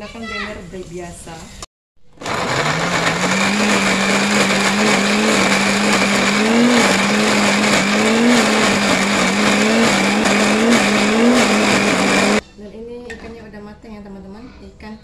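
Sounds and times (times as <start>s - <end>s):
electric blender grinding: 2.2s - 12.4s.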